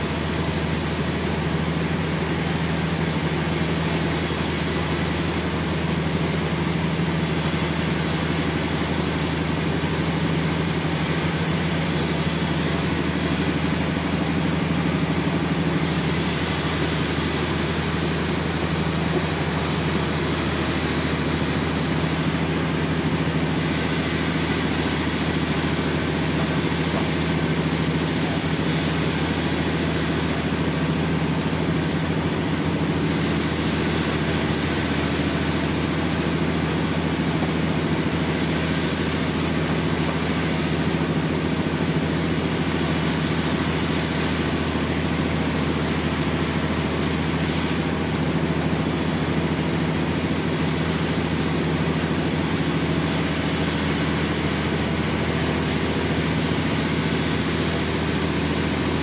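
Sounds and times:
sawmill engine drone: 0.0 - 59.0.

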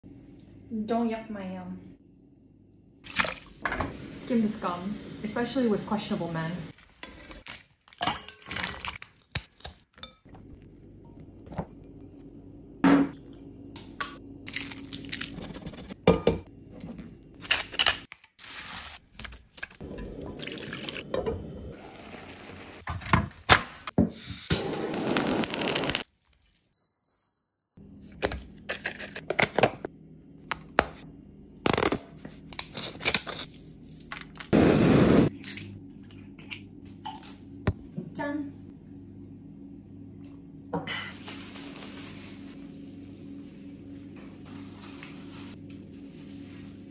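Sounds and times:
cooking noise bursts: 24.6 - 26.0, 34.5 - 35.3.

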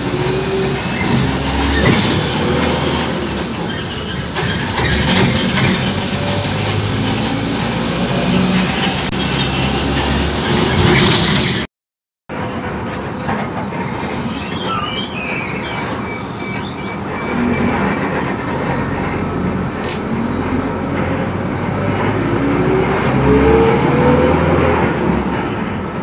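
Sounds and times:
bus engine: 0.0 - 11.7, 12.3 - 26.0
road and rattle noise: 0.0 - 11.7, 12.3 - 26.0
high-pitched squeal: 14.0 - 18.9.

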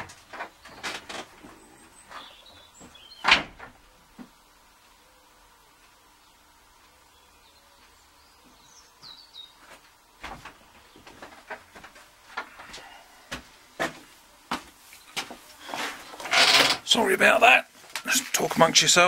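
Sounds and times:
faint room hum: 0.0 - 19.0
bird chirps: 1.6 - 3.3, 7.1 - 9.6.

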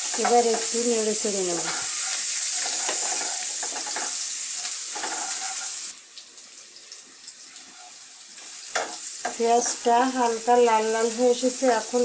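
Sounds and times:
onion sizzling in oil: 0.0 - 12.0
wooden spatula scraping pan: 1.4 - 5.9.

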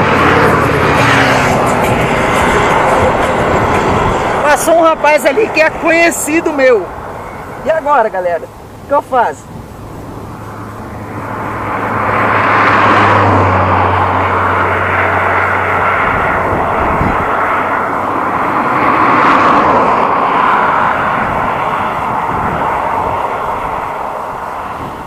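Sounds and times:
low engine drone: 0.0 - 25.0
road traffic passing: 0.0 - 25.0.

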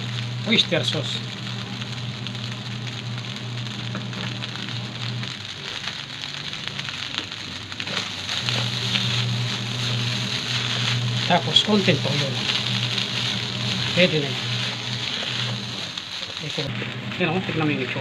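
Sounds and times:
low hum: 0.0 - 5.4, 8.0 - 16.0
rice sizzling in a wok: 0.0 - 18.0
spatula scraping wok: 1.3 - 18.0.

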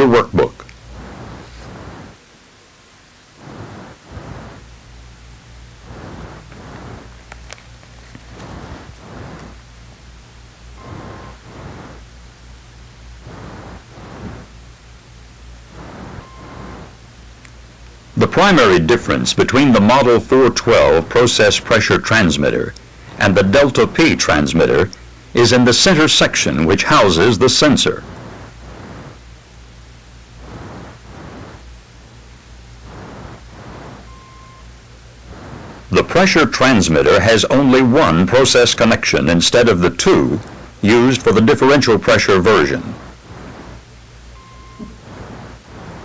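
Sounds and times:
recording hiss: 0.0 - 46.0
steady low hum: 0.0 - 46.0
rushing noise: 3.0 - 46.0
faint beep: 10.8 - 11.4, 16.0 - 16.9, 34.0 - 34.7, 44.3 - 45.1.

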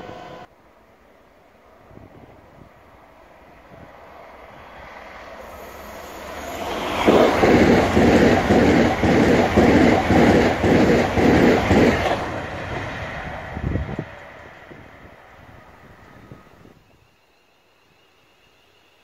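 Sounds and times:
electric train passing: 0.0 - 19.0
train wheels on rails: 1.9 - 16.7.

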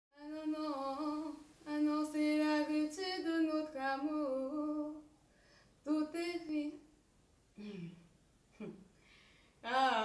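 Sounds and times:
woman singing long notes: 9.6 - 10.0.

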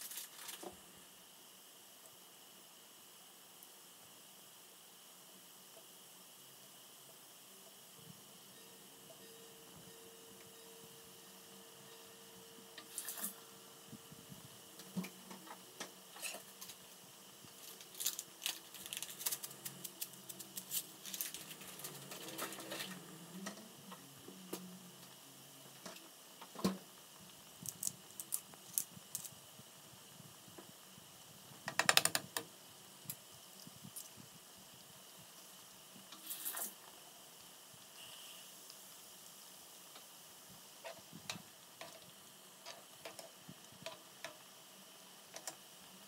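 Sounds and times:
broccoli simmering in a pan: 32.6 - 46.0.

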